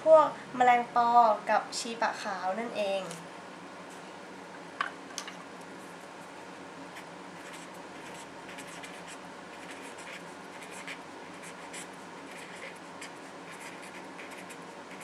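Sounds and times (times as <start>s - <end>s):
pen scratching while writing: 7.0s - 15.0s.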